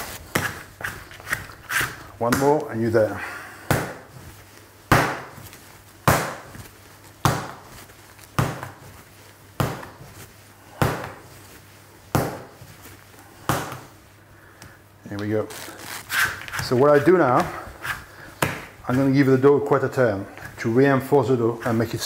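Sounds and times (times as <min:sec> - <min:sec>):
dough slapped on wooden bench: 0:04.9 - 0:05.4, 0:06.0 - 0:06.6, 0:07.2 - 0:07.7, 0:09.6 - 0:10.0.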